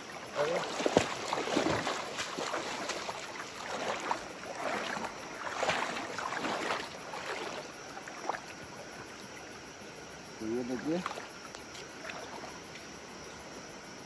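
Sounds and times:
river rushing: 0.0s - 8.5s
footsteps splashing over wet stones: 0.3s - 8.4s.

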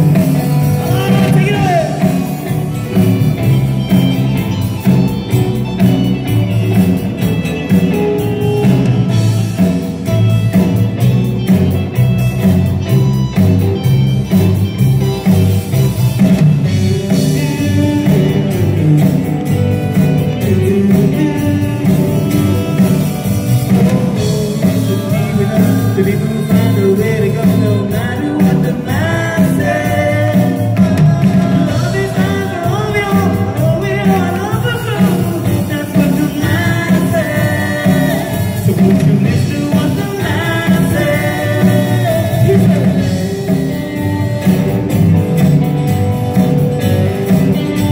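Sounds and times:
man singing lead vocal: 0.0s - 4.2s, 16.6s - 44.6s
bass: 0.0s - 47.9s
drums: 0.0s - 47.9s
electric guitar: 0.0s - 47.9s.

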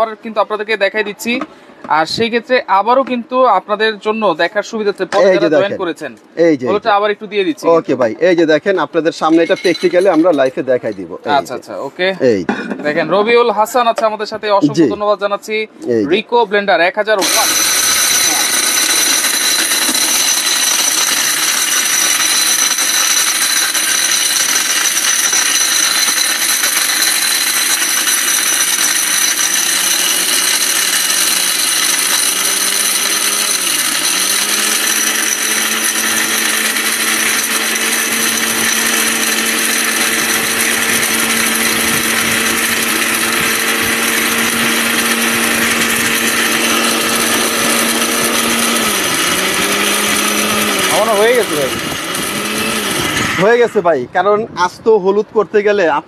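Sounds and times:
mixer grinder whirring and grinding: 9.4s - 11.6s, 17.2s - 53.6s.

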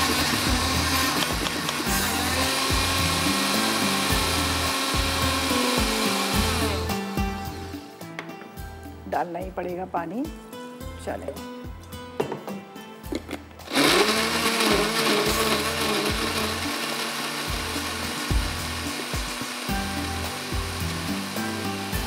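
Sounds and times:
electric blender running: 0.0s - 7.8s, 13.6s - 22.0s.

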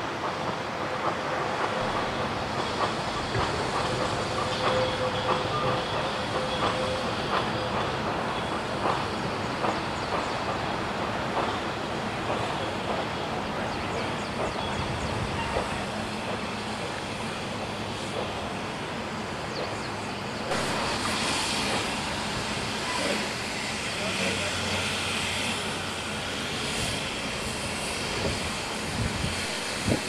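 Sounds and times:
train wheels clicking over rail joints: 0.1s - 30.0s.

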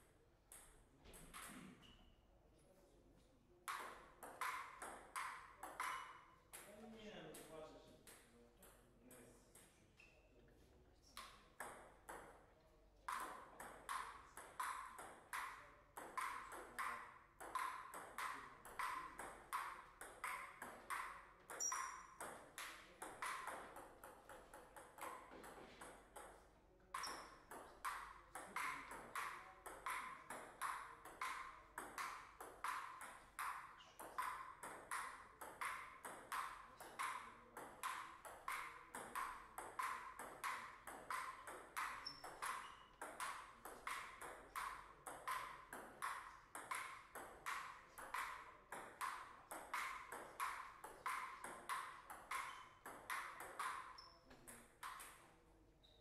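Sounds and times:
table tennis ball clicking: 3.7s - 6.7s, 13.1s - 26.4s, 27.0s - 55.2s.

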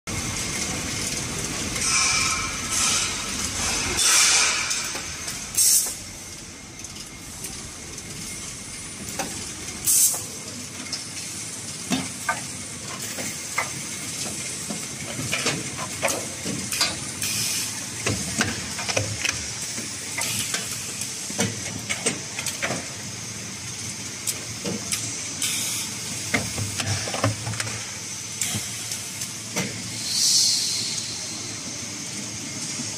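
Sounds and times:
machine hissing: 1.5s - 7.3s, 8.2s - 10.6s, 16.7s - 18.6s, 29.8s - 31.8s
loud hissing bursts: 29.9s - 31.3s.

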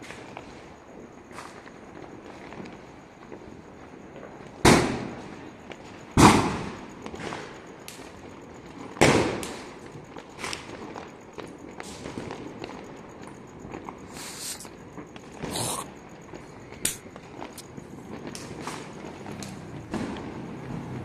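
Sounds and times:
firecrackers banging: 0.0s - 21.0s
small firecracker pops: 6.2s - 8.0s, 16.8s - 17.6s.

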